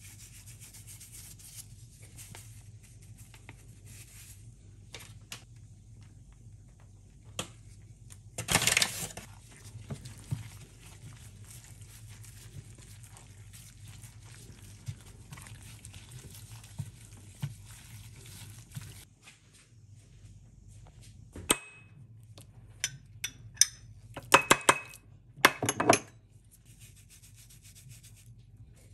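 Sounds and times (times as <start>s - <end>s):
wet rubbing of fish: 9.2s - 19.1s.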